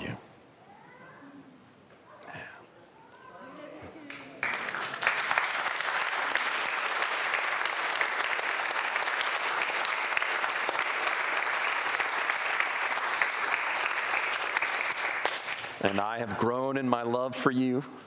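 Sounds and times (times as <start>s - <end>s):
crowd clapping: 4.1s - 17.1s.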